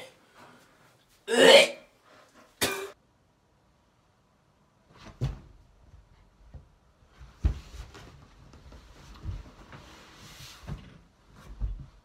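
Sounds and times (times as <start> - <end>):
person retching: 1.3 - 1.9.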